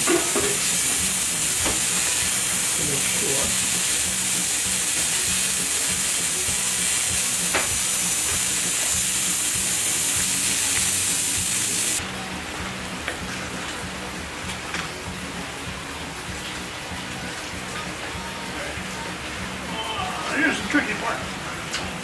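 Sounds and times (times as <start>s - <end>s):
bug zapper crackling buzz: 0.0s - 12.0s
rain pattering: 0.0s - 18.2s.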